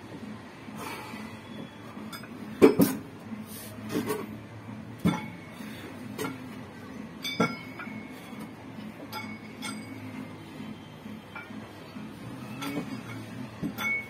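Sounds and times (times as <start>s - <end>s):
metal weight plates clinking: 9.0s - 10.0s, 12.5s - 14.0s.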